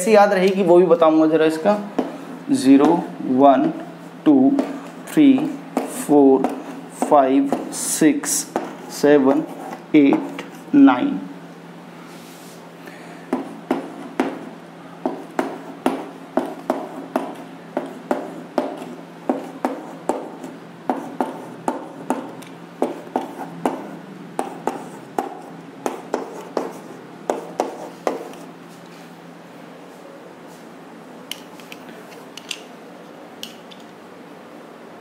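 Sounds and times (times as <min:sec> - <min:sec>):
chalk tapping and scraping on blackboard: 0:02.0 - 0:02.2, 0:02.8 - 0:10.7, 0:13.3 - 0:28.5.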